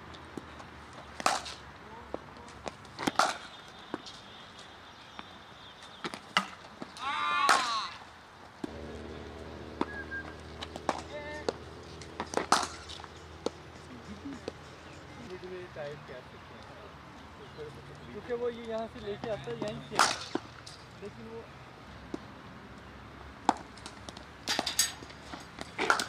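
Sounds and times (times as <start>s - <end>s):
person shouting: 7.0s - 8.0s
steady low hum: 8.7s - 14.9s.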